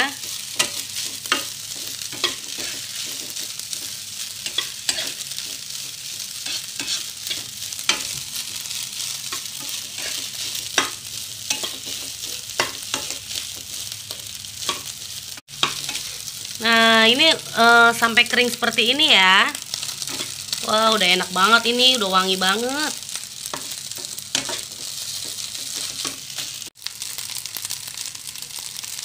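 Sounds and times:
rice sizzling in a wok: 0.0 - 29.0
metal spatula scraping wok: 0.1 - 14.9, 15.6 - 16.6, 19.7 - 20.5, 23.4 - 26.7.

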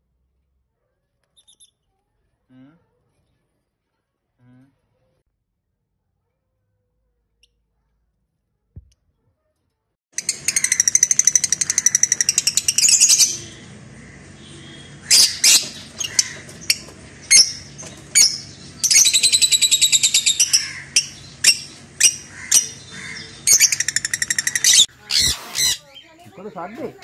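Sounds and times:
lovebird squawks: 10.2 - 26.1
lovebirds chirping shrilly: 10.2 - 26.3.

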